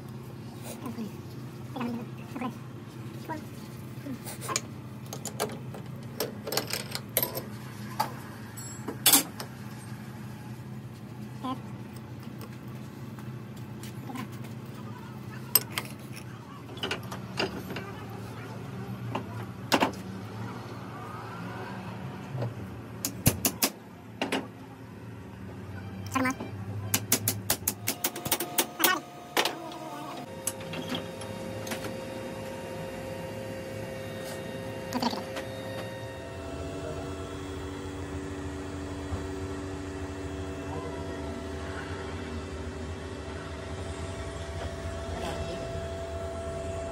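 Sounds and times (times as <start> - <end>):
machine hum with held tones: 0.0 - 15.7, 27.7 - 46.9
steady low hum: 23.8 - 46.9.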